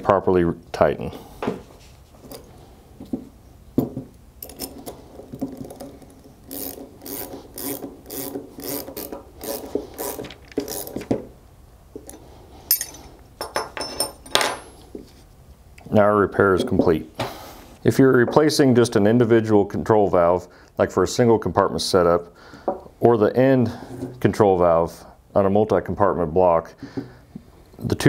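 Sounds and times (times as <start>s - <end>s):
wrench rasping strokes: 4.4s - 11.1s.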